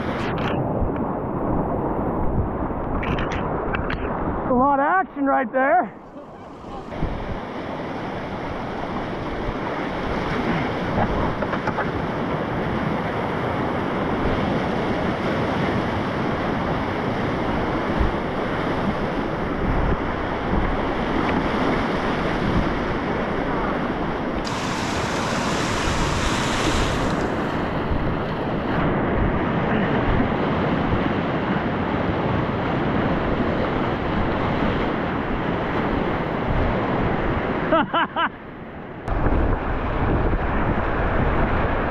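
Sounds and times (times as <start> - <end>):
wind buffeting microphone: 6.0 - 37.7, 39.1 - 41.9
whitewater rapids rushing: 24.4 - 28.1.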